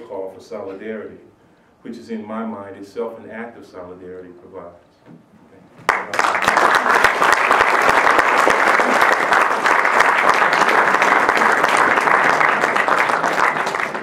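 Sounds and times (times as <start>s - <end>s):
audience applauding: 5.9s - 14.0s.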